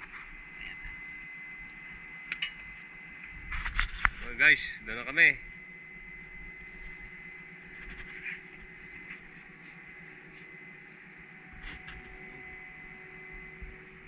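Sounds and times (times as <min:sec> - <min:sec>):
machinery hum with high whine: 0:00.0 - 0:14.0.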